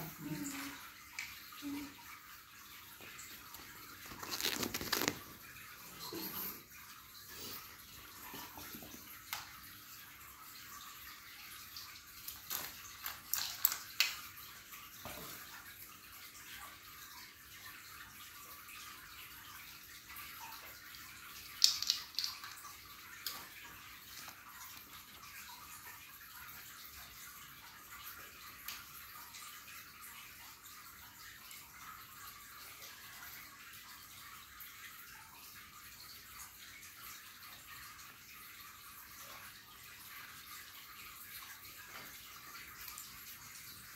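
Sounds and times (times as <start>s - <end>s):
plastic toys clattering on tiles: 12.3s - 14.1s, 21.5s - 22.6s.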